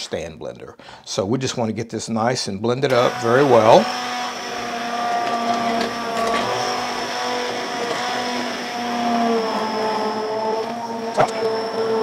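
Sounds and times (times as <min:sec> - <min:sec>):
immersion blender motor whine: 0:02.9 - 0:12.0.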